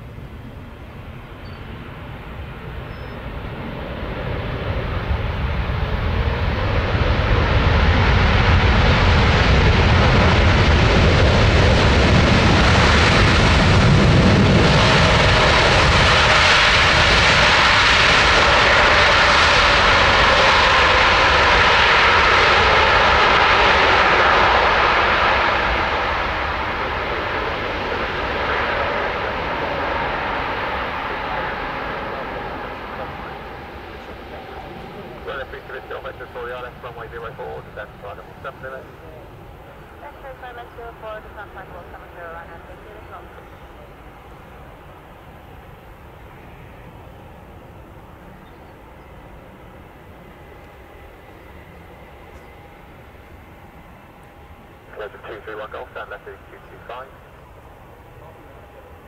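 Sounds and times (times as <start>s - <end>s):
jet engines roaring on takeoff roll: 0.0s - 59.0s.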